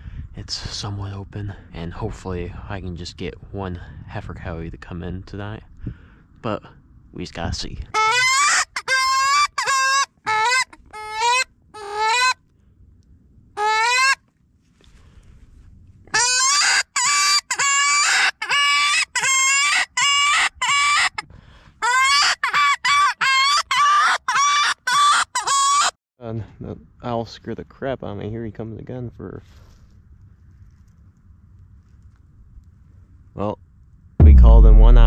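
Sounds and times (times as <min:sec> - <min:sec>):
predator call wailing cries: 0:13.6 - 0:14.2.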